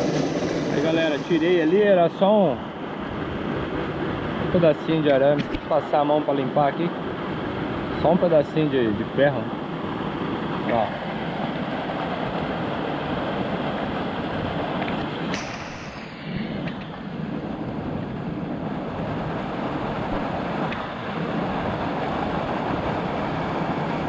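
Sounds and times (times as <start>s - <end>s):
waterfall rushing into pool: 0.0s - 2.6s, 10.6s - 16.8s.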